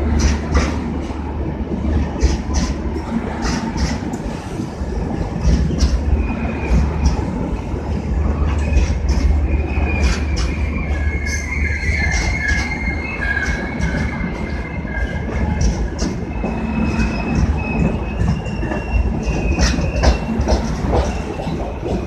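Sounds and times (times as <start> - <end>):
train rolling rumble: 0.0 - 22.0
high-pitched wheel squeal: 8.3 - 22.0
wheels clacking over rail joints: 11.3 - 22.0.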